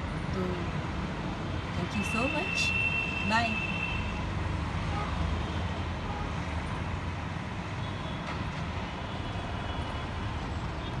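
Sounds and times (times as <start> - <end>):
distant road traffic rumble: 0.0 - 11.0.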